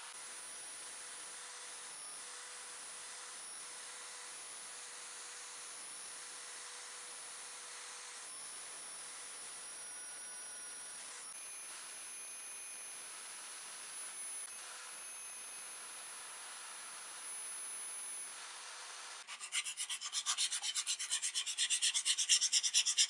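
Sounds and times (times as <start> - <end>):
drill wire wheel brushing rust: 19.3 - 23.0.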